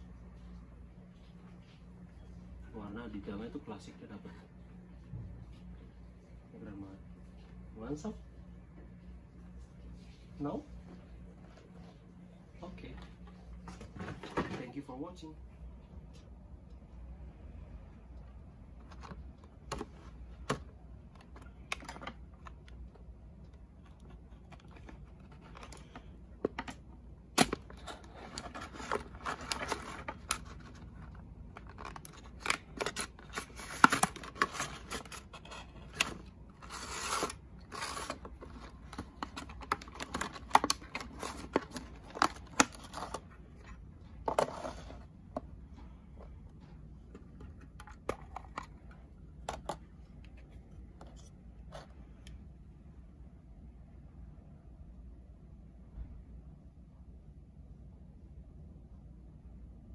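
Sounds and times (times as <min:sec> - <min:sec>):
plastic rustling: 0:23.9 - 0:45.0.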